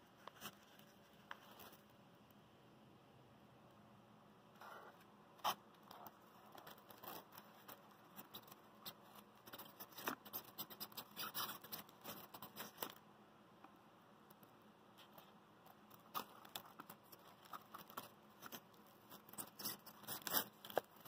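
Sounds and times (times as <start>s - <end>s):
hand scratching and rustling: 4.6s - 13.0s, 15.0s - 21.0s.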